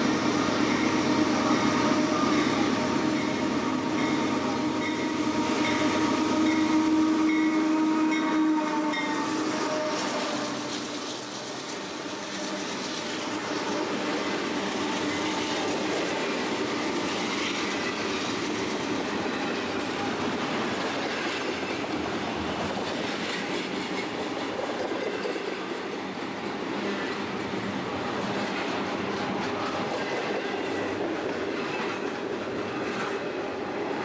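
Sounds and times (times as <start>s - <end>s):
freight train wheels on rails: 0.0s - 34.0s.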